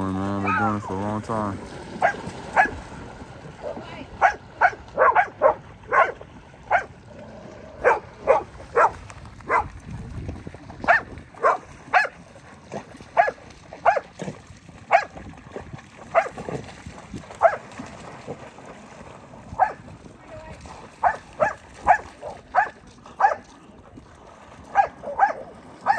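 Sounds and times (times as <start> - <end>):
dog barking: 0.4 - 0.7, 2.0 - 2.8, 4.2 - 6.9, 7.8 - 9.7, 10.9 - 12.2, 13.2 - 14.1, 14.9 - 15.1, 16.1 - 16.4, 17.4 - 17.6, 19.6 - 19.8, 21.0 - 23.4, 24.7 - 25.9.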